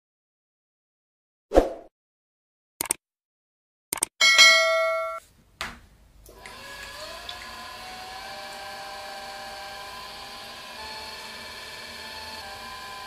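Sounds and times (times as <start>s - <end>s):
click and bell ding: 4.2s - 5.2s
potter's wheel motor humming: 6.3s - 13.0s.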